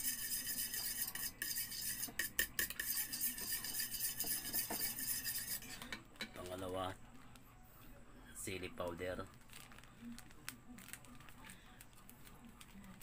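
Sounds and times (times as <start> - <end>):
utensil beating eggs in bowl: 0.0 - 6.0.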